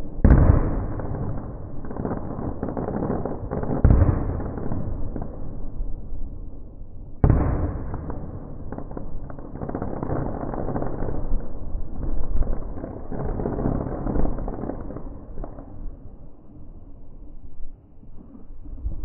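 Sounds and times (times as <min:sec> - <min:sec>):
fireworks booming: 0:00.0 - 0:05.9, 0:07.2 - 0:15.9
deep rumble with crackling: 0:07.1 - 0:19.0
fireworks popping: 0:07.2 - 0:15.8.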